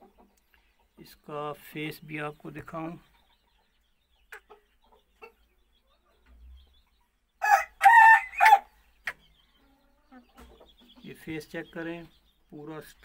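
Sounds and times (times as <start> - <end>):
rooster crowing: 7.4 - 8.7.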